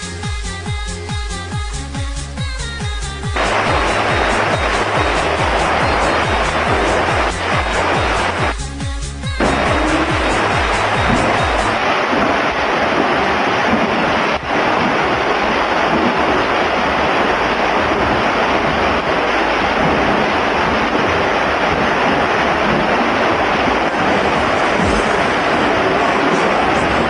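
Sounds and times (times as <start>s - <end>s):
swimmers splashing: 3.4s - 8.6s, 9.4s - 27.0s.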